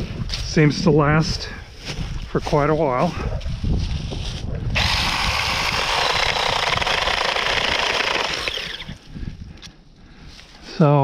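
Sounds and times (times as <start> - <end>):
mini chainsaw cutting branch: 4.8 - 9.0.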